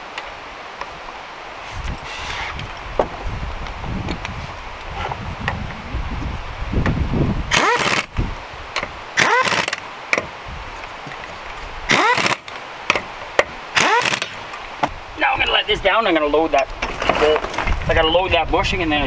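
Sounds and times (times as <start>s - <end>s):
air impact wrench whining: 2.0s - 2.6s, 7.5s - 8.2s, 9.2s - 9.8s, 11.9s - 12.5s, 13.8s - 14.5s.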